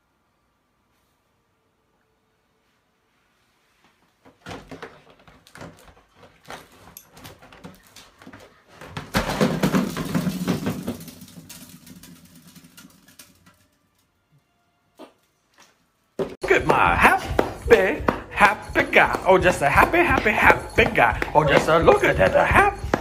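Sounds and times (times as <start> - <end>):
dog knocking cardboard box: 16.4 - 23.0.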